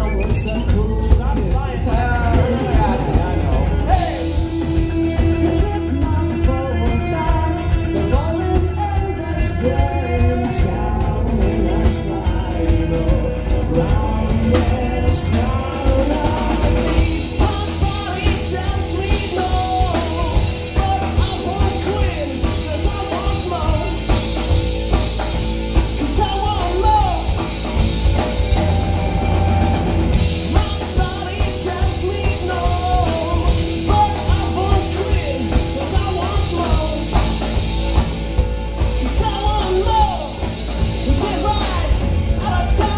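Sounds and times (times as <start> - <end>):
male voice singing: 0.0 - 24.6, 25.8 - 28.6, 29.6 - 37.6, 38.8 - 42.9
drum kit beat: 0.0 - 42.9
electric bass: 0.0 - 42.9
electric guitar: 0.0 - 42.9.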